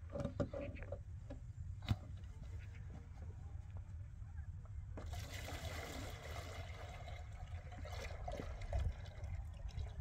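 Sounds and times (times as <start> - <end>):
water pouring and splashing: 5.0 - 10.0.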